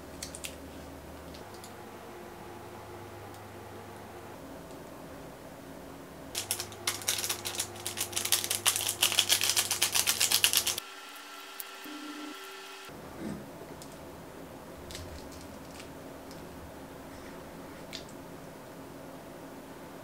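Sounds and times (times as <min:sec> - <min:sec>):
seasoning shaken from packet: 0:06.4 - 0:10.8.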